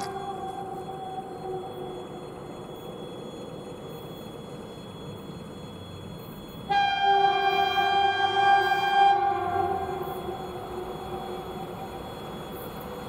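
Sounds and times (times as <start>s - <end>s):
train rumbling: 0.0s - 13.0s
locomotive horn: 6.7s - 12.1s.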